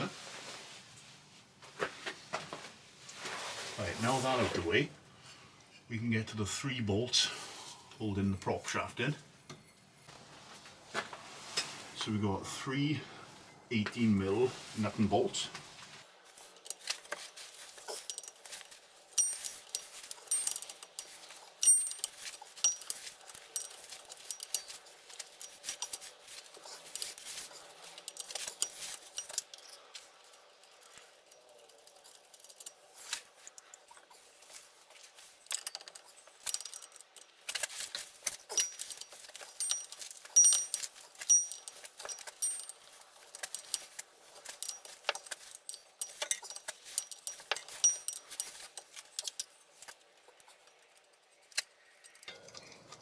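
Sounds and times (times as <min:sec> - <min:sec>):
metal tool clinks: 0:16.6 - 0:33.9, 0:34.5 - 0:52.9.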